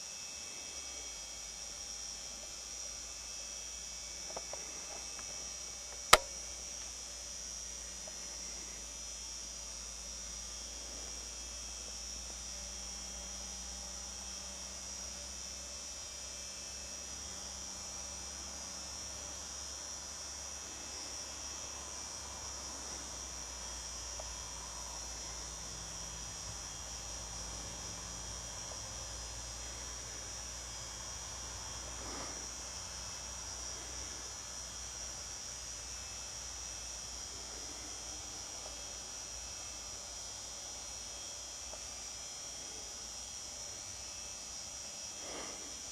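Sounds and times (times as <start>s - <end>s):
crickets chirping: 16.7s - 45.9s.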